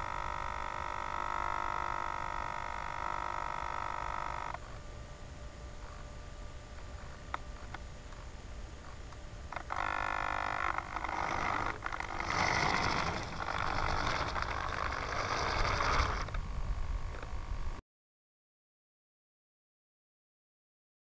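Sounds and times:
servo turntable whirring: 9.6 - 16.4.

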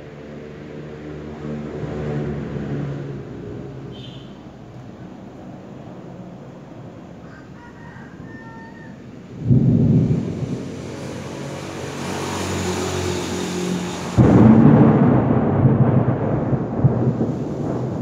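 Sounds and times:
thunder clap and rumble: 9.3 - 18.0.

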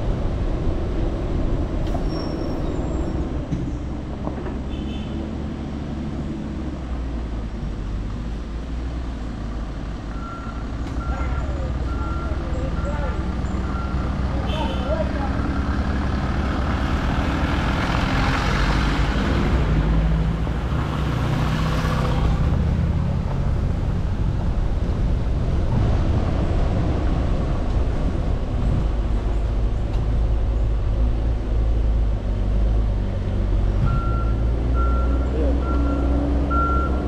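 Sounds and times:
traffic passing close by: 0.0 - 37.0
tyre and road noise: 0.0 - 37.0
vehicle engine rumble: 0.0 - 37.0.

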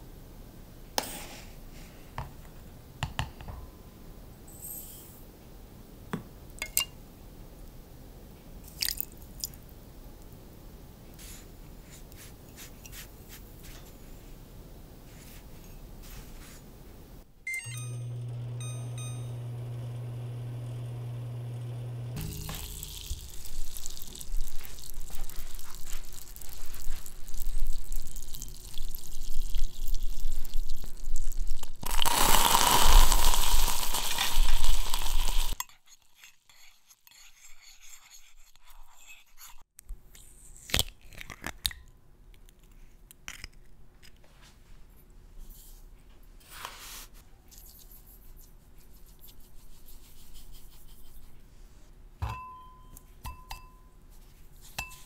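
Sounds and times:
microwave oven humming: 17.5 - 23.4
caramel bubbling and sizzling: 19.3 - 37.2.

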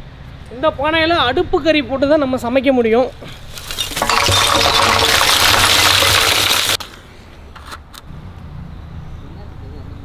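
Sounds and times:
charcoal clattering into metal drum: 3.5 - 6.8.

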